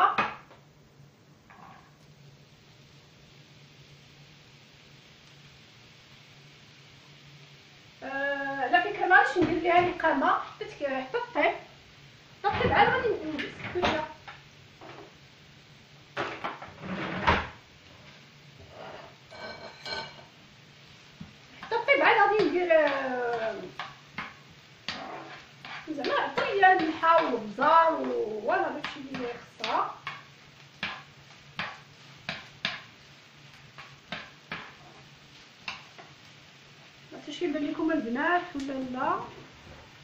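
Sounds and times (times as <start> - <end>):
spoon scraping a frying pan: 1.5 - 2.0, 18.0 - 20.4, 22.4 - 36.2.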